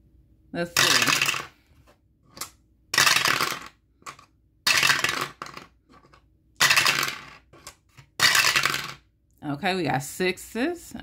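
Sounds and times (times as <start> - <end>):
dice clattering through a tower: 0.7 - 1.6, 2.3 - 9.1.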